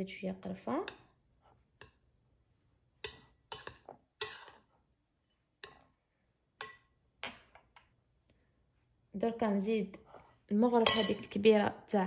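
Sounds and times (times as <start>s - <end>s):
spoon clinking on glass bowl: 10.8s - 11.3s.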